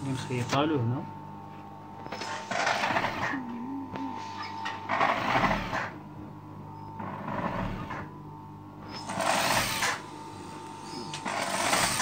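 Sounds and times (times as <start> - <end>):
sewing machine stitching: 2.2 - 3.4, 4.9 - 5.9, 9.0 - 10.0, 11.2 - 12.0.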